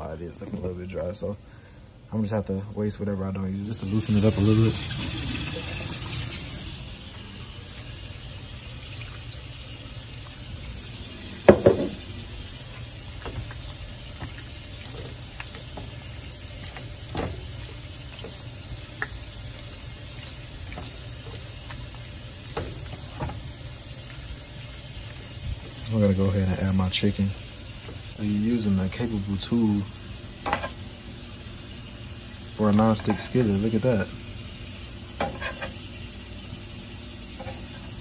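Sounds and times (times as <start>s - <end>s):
utensil knocking against pan: 11.4s - 12.0s
tap running into metal sink: 11.4s - 12.1s, 16.7s - 18.4s.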